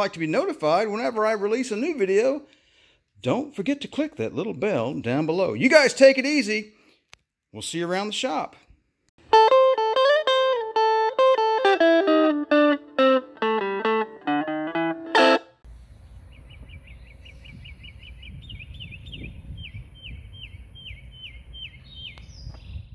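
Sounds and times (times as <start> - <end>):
guitar riff: 9.2 - 15.6
low wind noise: 15.7 - 22.9
bird chirping: 15.8 - 22.9.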